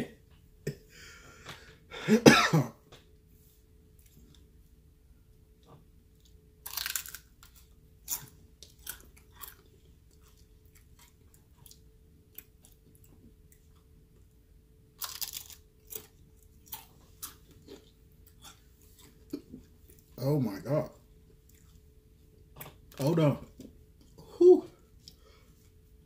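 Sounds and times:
person crunching a chip: 6.6 - 12.8, 15.0 - 18.6.

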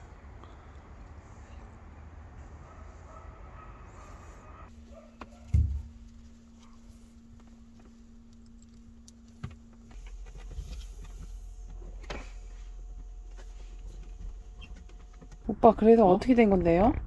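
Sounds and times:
faint steady hum: 0.0 - 17.0
wires clicking and rattling: 5.9 - 15.5.

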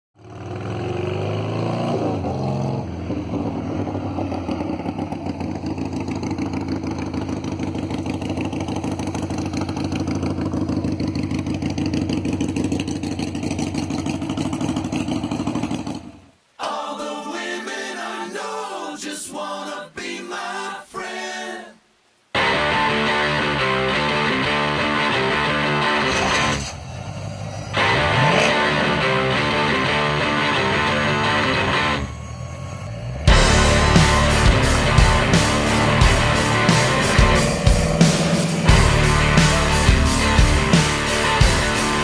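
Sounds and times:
vehicle engine revving and idling: 0.2 - 16.2, 23.8 - 32.1, 33.0 - 42.0
choppy sound: 26.0 - 42.0.

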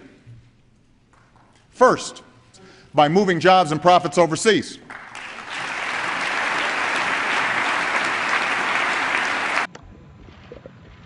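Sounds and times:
audience applauding: 4.9 - 9.7.

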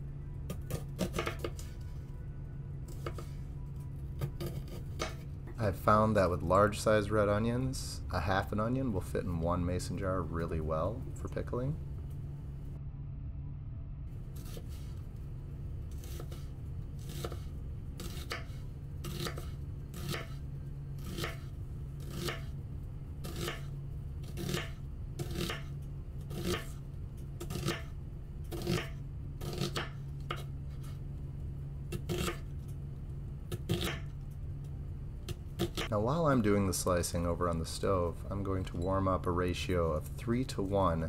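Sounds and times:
knife slicing onion on wooden board: 0.5 - 1.8, 2.9 - 3.4, 4.2 - 5.3, 14.4 - 14.9, 15.9 - 20.4, 21.0 - 22.6, 23.2 - 31.0, 31.9 - 32.5, 33.5 - 34.1, 35.3 - 35.9.

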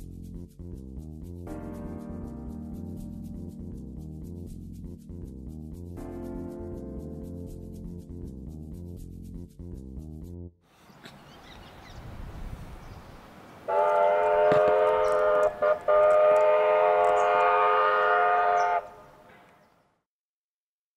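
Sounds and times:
steam locomotive chime whistle: 13.7 - 19.2.

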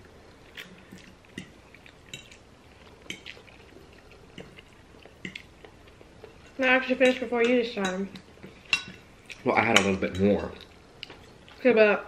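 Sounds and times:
faint wet chewing: 0.0 - 7.2, 8.1 - 11.6
forks clinking on ceramic plates: 7.0 - 9.0, 9.6 - 10.6.

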